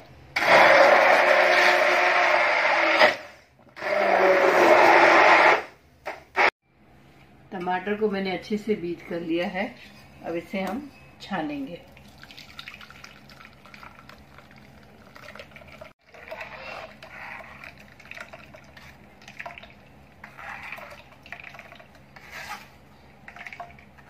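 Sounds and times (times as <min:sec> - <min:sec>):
spoon scraping pulp on mesh: 0:22.2 - 0:22.8.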